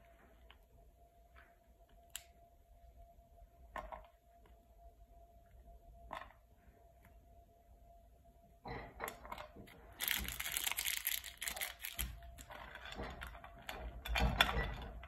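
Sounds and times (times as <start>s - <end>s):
foil wrapper crinkling: 10.0s - 12.4s.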